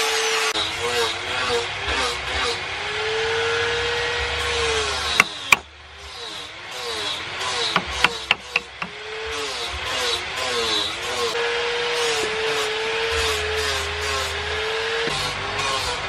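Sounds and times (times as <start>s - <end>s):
motor hum: 4.4s - 6.2s, 7.6s - 9.2s
carving tools knocking on wood: 5.2s - 5.7s, 7.7s - 9.0s.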